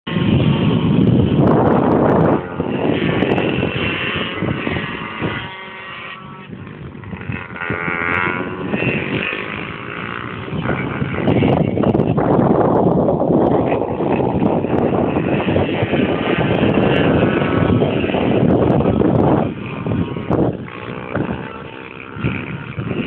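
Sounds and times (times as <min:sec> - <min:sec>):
motorbike engine revving: 0:00.1 - 0:23.0
wind rumble on microphone: 0:00.1 - 0:23.0.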